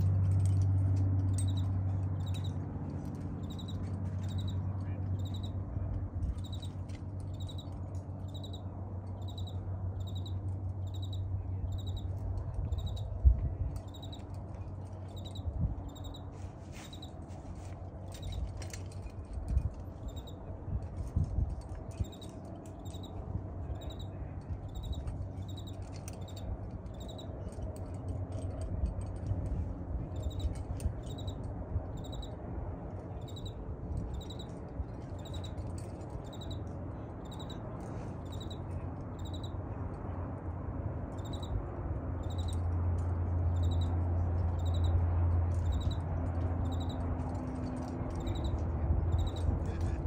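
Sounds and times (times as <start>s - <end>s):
steady low rumble: 0.0s - 50.0s
high-pitched animal chirp: 5.2s - 5.6s, 9.2s - 12.1s.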